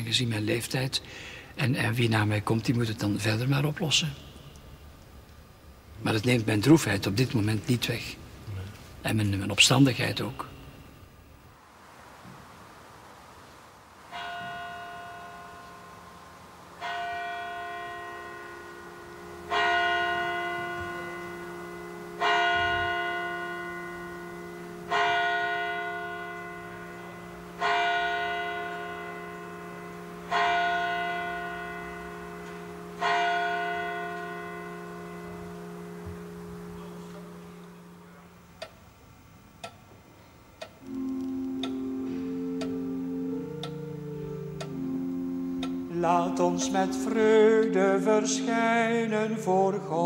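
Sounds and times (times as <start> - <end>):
church bell striking: 14.1 - 38.7, 40.9 - 49.7.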